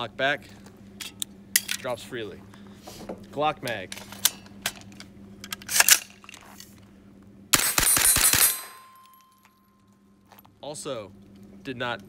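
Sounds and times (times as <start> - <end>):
metallic gun handling clicks: 3.6 - 6.7
rapid gunshots: 7.6 - 8.7.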